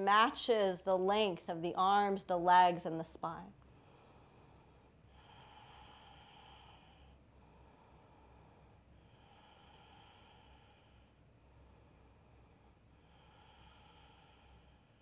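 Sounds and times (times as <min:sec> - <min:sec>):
slow human breathing: 0:03.6 - 0:15.0.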